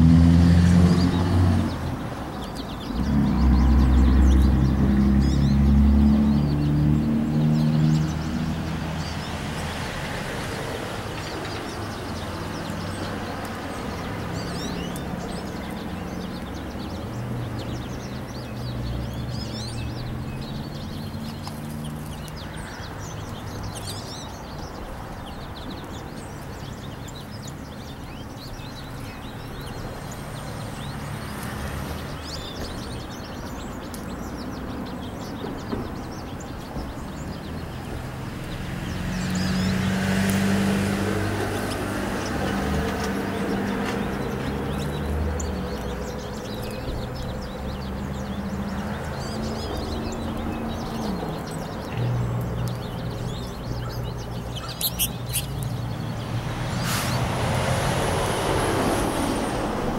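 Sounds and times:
vehicle passing close: 0:00.0 - 0:22.3, 0:36.8 - 0:59.9
road traffic hum: 0:00.0 - 0:59.9
small birds chirping: 0:00.0 - 0:59.9.

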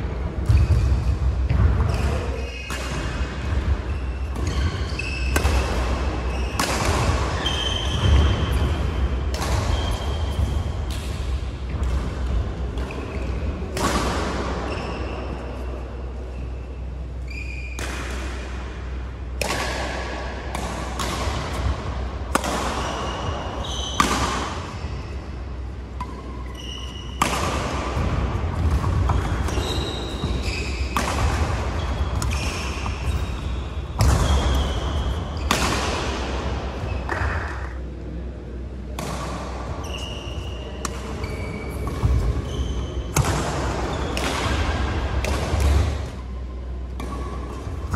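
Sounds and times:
racket hitting shuttlecock: 0:00.4 - 0:14.7, 0:17.7 - 0:24.8, 0:26.0 - 0:37.8, 0:38.9 - 0:47.9
shoe squeaks on court: 0:03.9 - 0:05.4, 0:06.2 - 0:06.7, 0:14.7 - 0:15.7, 0:17.3 - 0:17.8, 0:22.8 - 0:25.1, 0:26.3 - 0:27.2, 0:29.1 - 0:31.0, 0:39.8 - 0:43.2.

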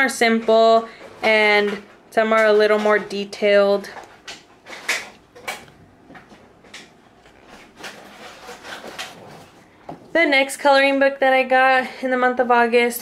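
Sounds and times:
pages being turned: 0:04.1 - 0:09.6.

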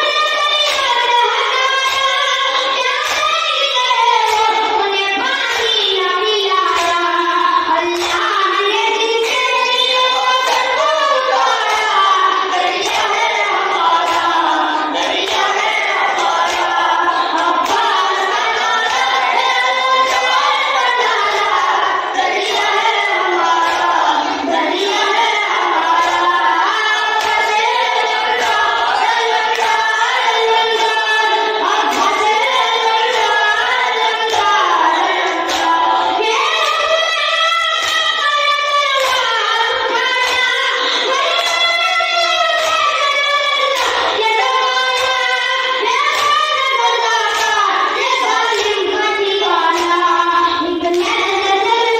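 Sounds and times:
boy chanting a lament: 0:00.0 - 0:51.9
rhythmic chest-beating: 0:00.0 - 0:51.9
men singing in chorus: 0:09.3 - 0:37.7.

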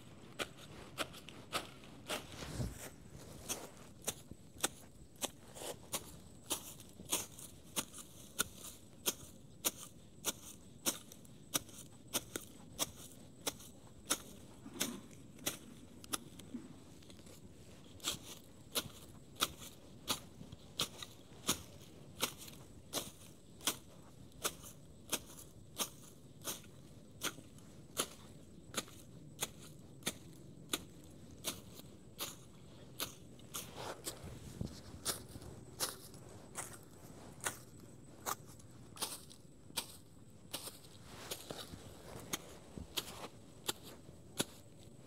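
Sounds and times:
blade snipping grass: 0:18.0 - 0:34.2, 0:35.0 - 0:44.9.

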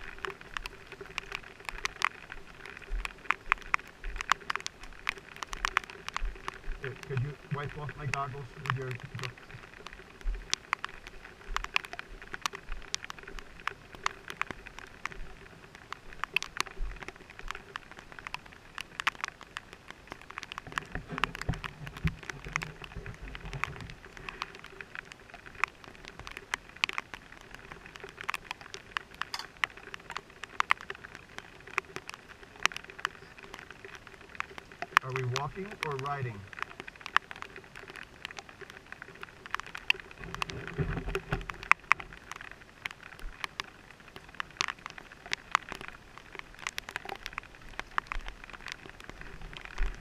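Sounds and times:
raindrops ticking on helmet: 0:00.0 - 0:50.0
steady rain hiss: 0:00.0 - 0:50.0.

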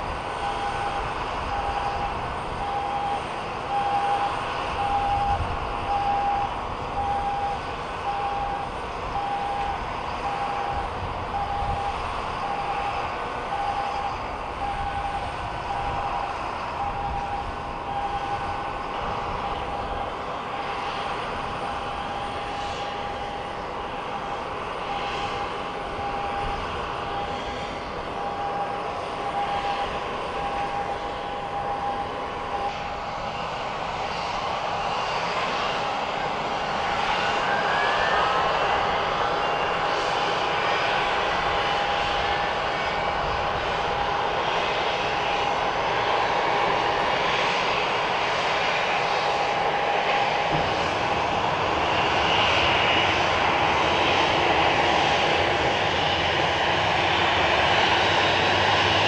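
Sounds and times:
jet engines running: 0:00.0 - 0:59.0
short beeps: 0:00.4 - 0:21.1, 0:21.7 - 0:27.6, 0:28.2 - 0:33.4.

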